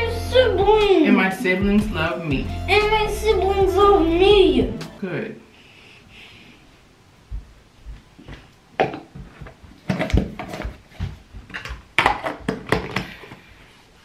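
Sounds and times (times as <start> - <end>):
plastic containers knocking: 8.8 - 13.2.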